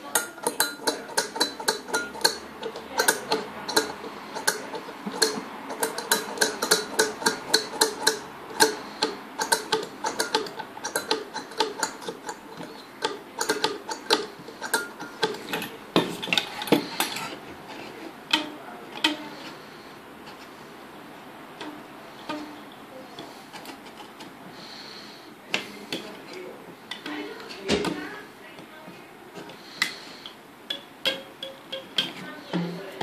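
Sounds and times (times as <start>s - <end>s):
metal strip clacking against wood: 0.0s - 19.6s, 21.6s - 24.4s, 29.5s - 32.8s.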